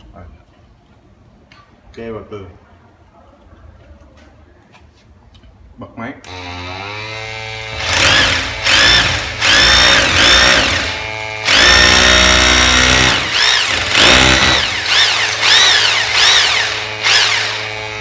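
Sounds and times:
suction motor humming: 0:06.3 - 0:18.0
rotary hammer drilling into wall: 0:07.2 - 0:18.0.

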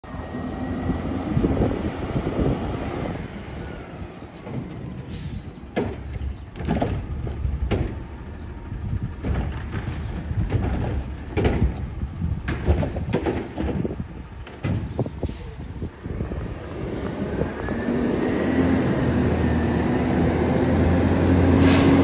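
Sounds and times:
garbage truck diesel engine: 0:00.0 - 0:22.0
metal and plastic clunks: 0:09.2 - 0:15.1.

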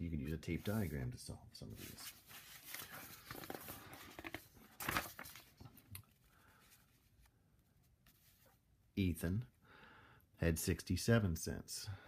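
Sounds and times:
paper rustling: 0:01.7 - 0:07.3.

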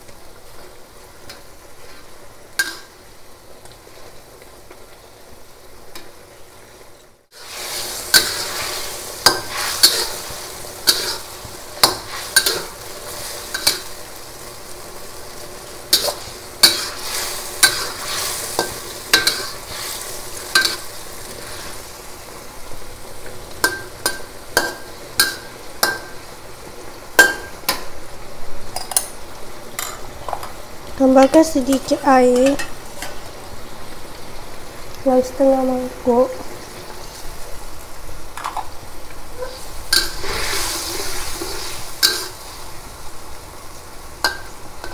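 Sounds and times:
food sizzling: 0:00.0 - 0:44.9
metal spatula scraping a wok: 0:07.4 - 0:13.9, 0:15.9 - 0:21.9, 0:39.4 - 0:42.6.

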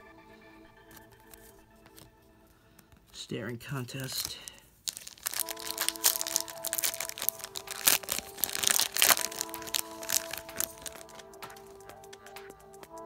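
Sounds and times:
background music: 0:00.0 - 0:04.4, 0:05.0 - 0:13.0
foil wrapper crinkling: 0:03.8 - 0:11.8.

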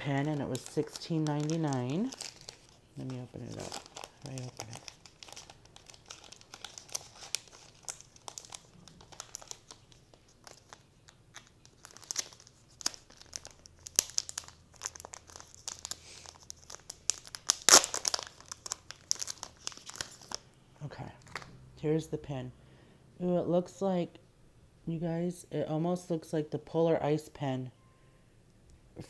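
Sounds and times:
plastic bag crinkling: 0:00.0 - 0:20.5.

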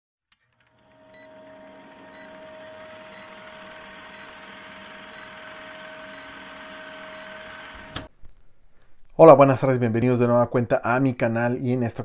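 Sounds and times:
film projector clatter and hum: 0:00.3 - 0:08.1.

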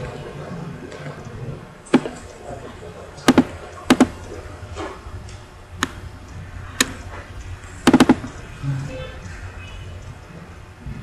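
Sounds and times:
low steady hum: 0:00.0 - 0:11.0
computer mouse clicking: 0:05.3 - 0:08.4.

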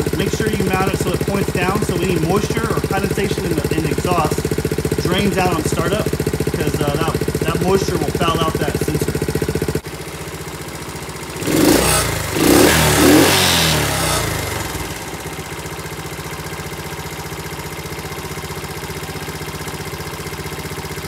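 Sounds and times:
minibike engine idling and revving: 0:00.0 - 0:21.0.

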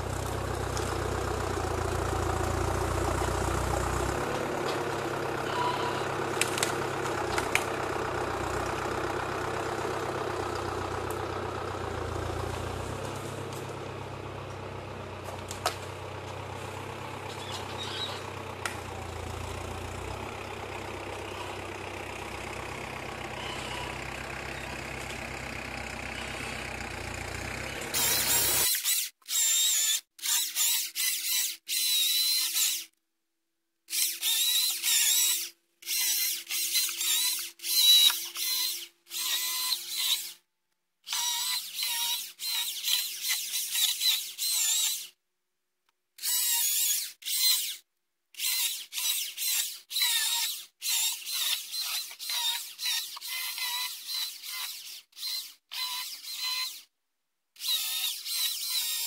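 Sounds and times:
battery chainsaw whining: 0:00.0 - 0:14.6, 0:15.2 - 0:32.9, 0:33.9 - 0:40.4, 0:48.4 - 0:56.9
tractor diesel engine running: 0:00.0 - 0:28.6.

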